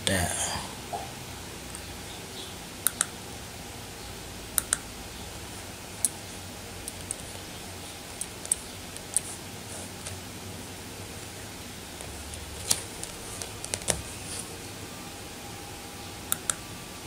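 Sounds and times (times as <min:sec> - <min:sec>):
low background hum: 0:00.0 - 0:17.0
computer mouse clicking: 0:02.8 - 0:03.1, 0:04.6 - 0:04.8, 0:06.8 - 0:07.5, 0:08.1 - 0:09.3, 0:12.0 - 0:14.2, 0:16.3 - 0:16.6.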